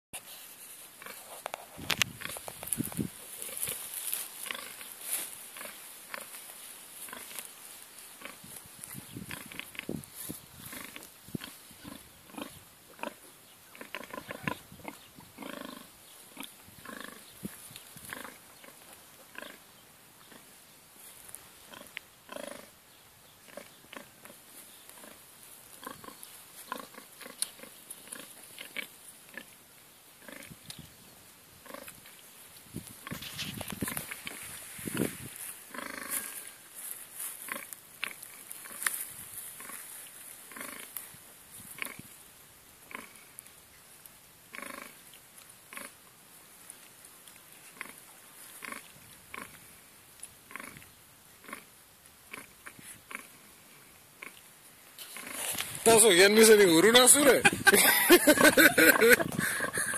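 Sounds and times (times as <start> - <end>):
pigs grunting and squealing: 10.7 - 17.2.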